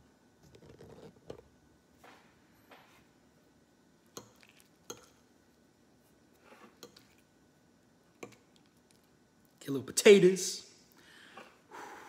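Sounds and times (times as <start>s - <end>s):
fork scraping plate: 6.4s - 7.2s.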